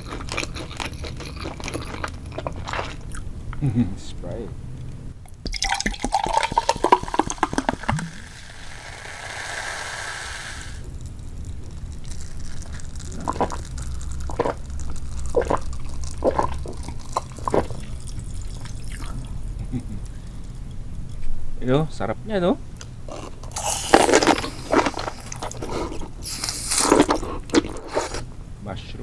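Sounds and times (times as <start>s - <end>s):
soda fizzing: 5.3s - 19.4s, 26.2s - 27.1s
soda pouring over ice: 5.5s - 19.3s.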